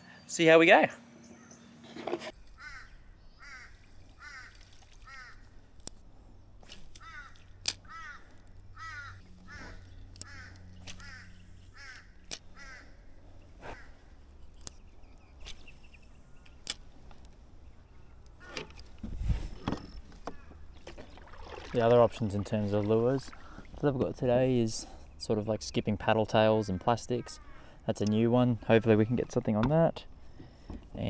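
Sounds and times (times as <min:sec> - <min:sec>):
bird calling: 0:00.0 - 0:05.6, 0:06.6 - 0:18.9, 0:19.6 - 0:21.6, 0:23.3 - 0:23.8, 0:26.3 - 0:27.8.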